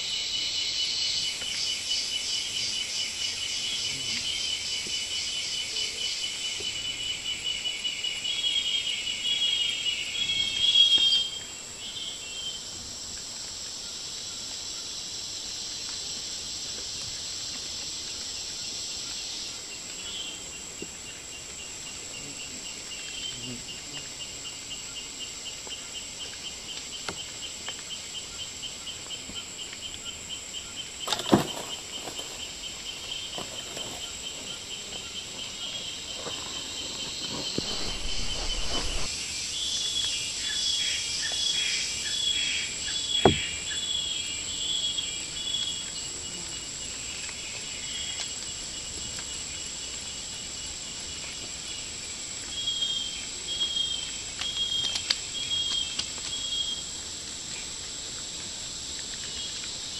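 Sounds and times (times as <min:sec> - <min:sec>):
insect rapid pulsed trill: 0:00.0 - 0:12.8, 0:13.6 - 0:46.4
insects high-pitched drone: 0:00.0 - 0:59.9.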